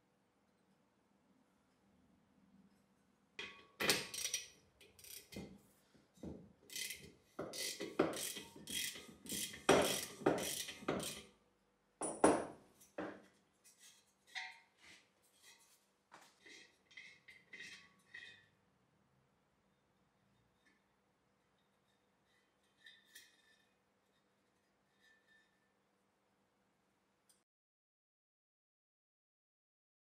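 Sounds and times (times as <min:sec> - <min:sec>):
ratchet wrench clicking: 0:03.8 - 0:05.4, 0:06.7 - 0:11.3.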